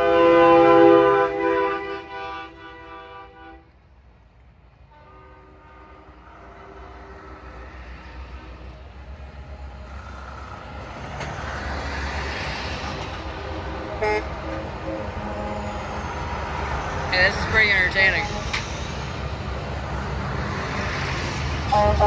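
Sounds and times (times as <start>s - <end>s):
air horn chord: 0.0s - 3.7s, 13.9s - 15.8s, 21.7s - 22.0s
short horn blast: 0.0s - 3.8s, 13.5s - 15.9s, 21.7s - 22.0s
trucks passing: 0.0s - 22.0s.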